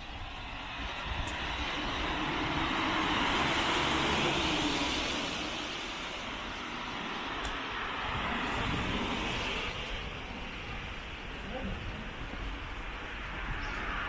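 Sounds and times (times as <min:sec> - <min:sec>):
vehicle passing by: 0:01.5 - 0:06.3.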